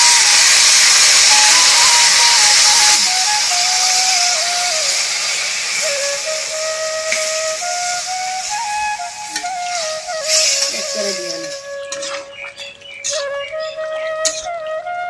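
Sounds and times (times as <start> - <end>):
vegetables sizzling in a pan: 0.0 - 13.3
background music melody: 0.0 - 15.0
spatula scraping a pan: 9.7 - 12.2.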